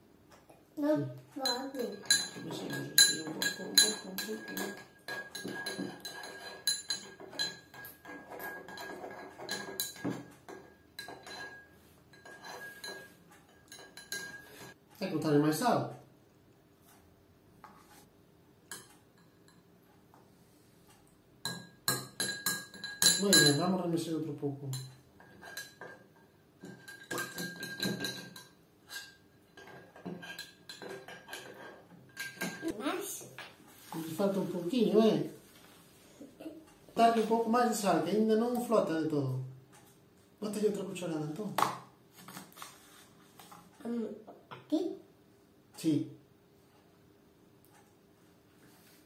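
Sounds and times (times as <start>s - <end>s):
metal spoon clinking in glass: 1.4s - 14.7s, 21.4s - 23.7s, 26.6s - 32.7s.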